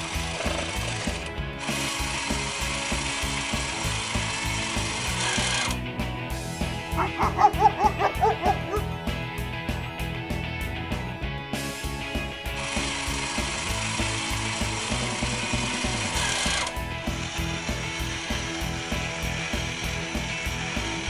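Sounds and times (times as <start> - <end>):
claw machine motor whirring: 0.1 - 5.8, 12.6 - 21.0
background music with beat: 1.2 - 21.0.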